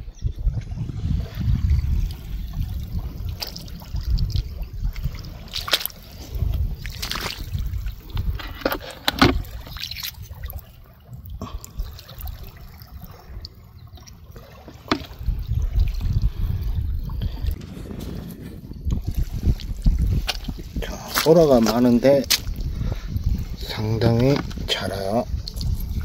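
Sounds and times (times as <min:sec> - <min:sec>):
steady low rumble: 0:00.0 - 0:13.8
water sloshing over mud: 0:01.1 - 0:26.0
sharp clicks and splashes: 0:01.3 - 0:17.7, 0:18.8 - 0:26.0.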